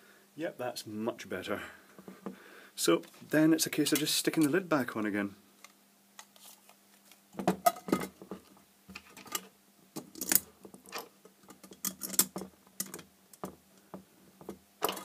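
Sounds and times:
metal cover and screws clattering: 7.4 - 13.5.

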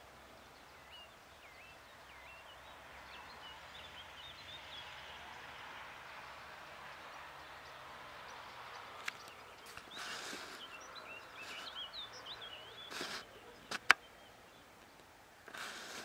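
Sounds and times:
birds chirping faintly: 0.0 - 16.0
light steady hiss: 0.0 - 16.0
sharp clicks: 12.9 - 14.0.

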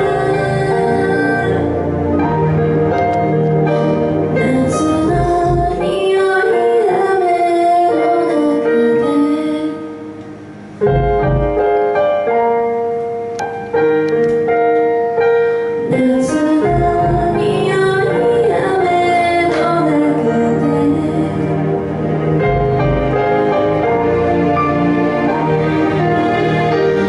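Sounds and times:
keyboard backing: 0.0 - 27.0
woman singing pop ballad: 4.4 - 9.9, 15.9 - 21.5
band low thump: 5.1 - 6.0, 10.9 - 11.9.

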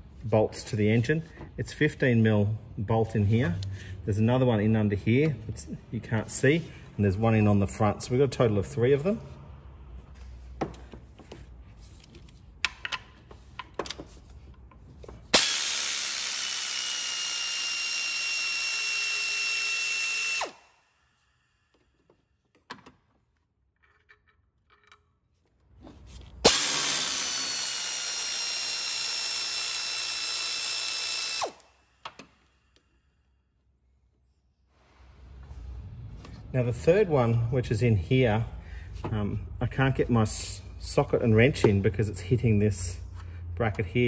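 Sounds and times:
air ratchet hissing and whining: 15.3 - 20.7, 26.4 - 31.8.

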